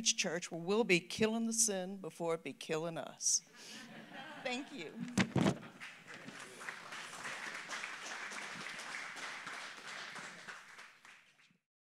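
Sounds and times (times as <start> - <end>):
congregation applauding: 5.2 - 11.6.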